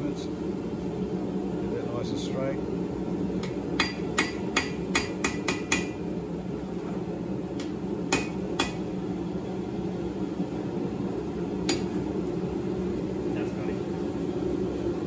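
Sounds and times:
hammer ringing on anvil: 0:08.1 - 0:08.8.

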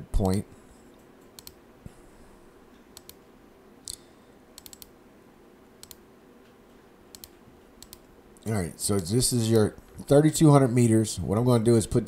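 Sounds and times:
faint steady hum: 0:00.0 - 0:12.0
computer mouse clicking: 0:01.0 - 0:01.6, 0:03.0 - 0:03.2, 0:04.6 - 0:05.0, 0:05.8 - 0:06.0, 0:07.1 - 0:08.1.

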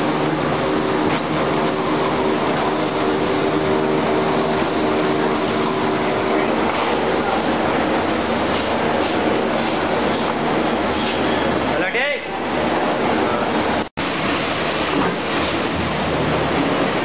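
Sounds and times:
cutting machine mechanical drone: 0:00.0 - 0:11.8.

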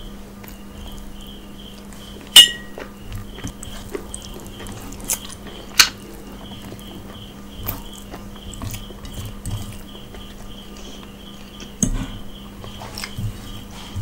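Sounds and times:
chewing and mouth noises: 0:00.4 - 0:11.9
faint high chirp: 0:02.3 - 0:02.8
hand clinking metal plate: 0:02.4 - 0:02.7.

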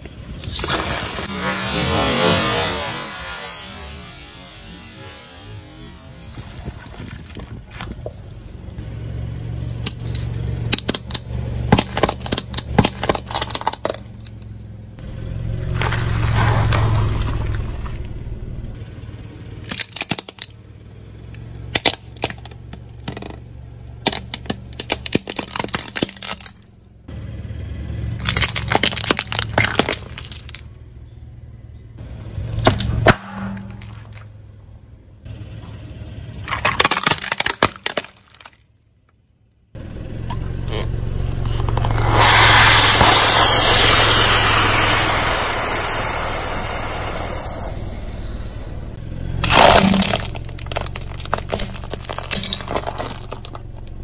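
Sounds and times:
car engine humming: 0:00.0 - 0:37.9, 0:39.2 - 0:54.0
tyres crushing brittle objects: 0:09.8 - 0:14.7, 0:15.7 - 0:18.0, 0:19.6 - 0:20.6, 0:21.7 - 0:23.4, 0:24.0 - 0:26.7, 0:28.2 - 0:30.7, 0:36.4 - 0:38.8, 0:49.3 - 0:54.0.

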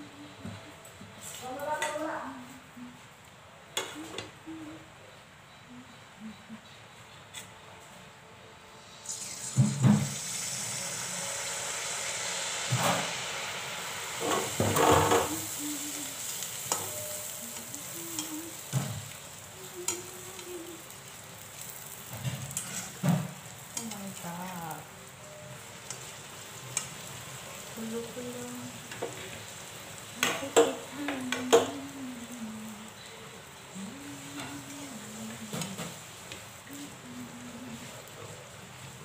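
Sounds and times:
batter sizzling in hot oil: 0:08.8 - 0:39.0.

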